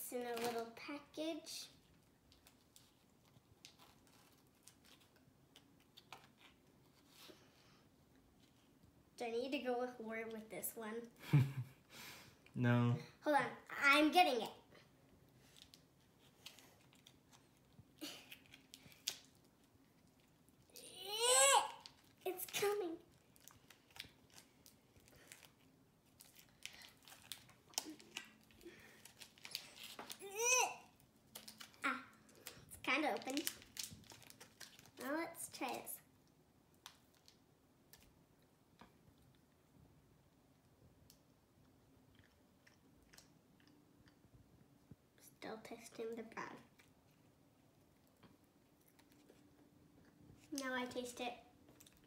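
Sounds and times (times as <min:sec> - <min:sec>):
plastic pouch crinkling: 0:21.8 - 0:30.2, 0:31.2 - 0:35.0.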